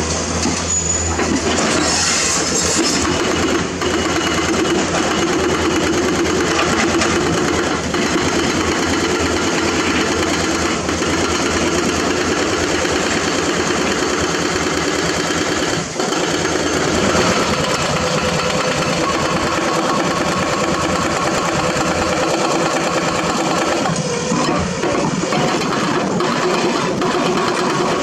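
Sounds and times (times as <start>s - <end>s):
excavator diesel engines running: 0.0s - 28.0s
excavators digging in rock: 0.0s - 28.0s.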